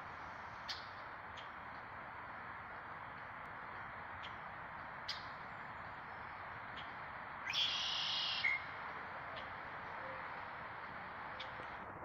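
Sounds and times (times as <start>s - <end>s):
blackbird buzzy trill song: 6.1s - 8.8s.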